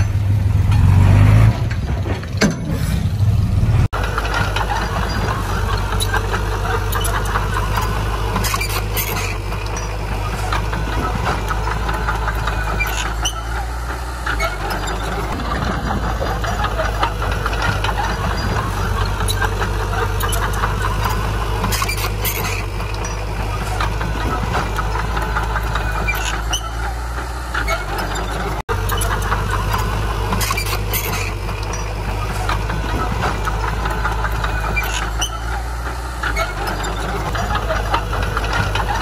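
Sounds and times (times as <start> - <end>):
heavy diesel engine running: 0.0 - 39.0
short high clicks or squeaks: 6.9 - 9.9, 11.6 - 15.4, 20.2 - 24.0, 24.9 - 33.7, 34.4 - 37.4.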